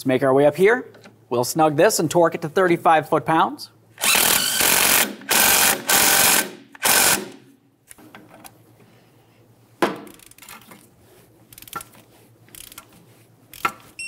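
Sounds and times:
power ratchet whirring: 4.0s - 7.4s.

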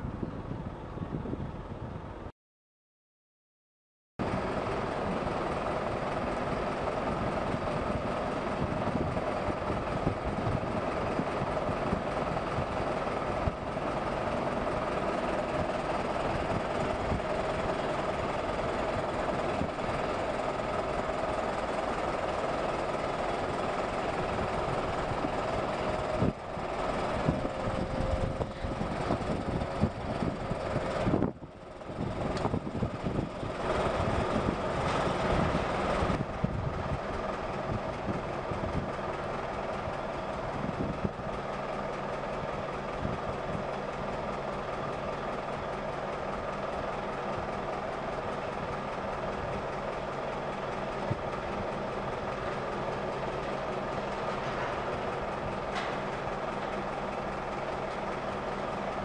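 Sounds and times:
engine hum: 0.0s - 2.3s, 4.2s - 59.0s
engine knocks: 4.2s - 59.0s.

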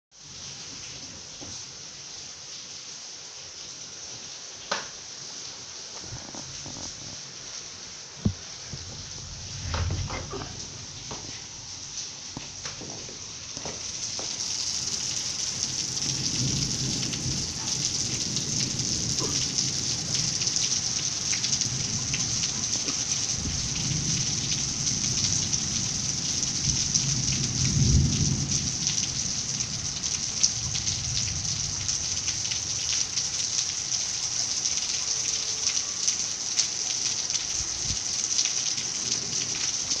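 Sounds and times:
high-pitched crackling hiss: 0.2s - 17.6s.

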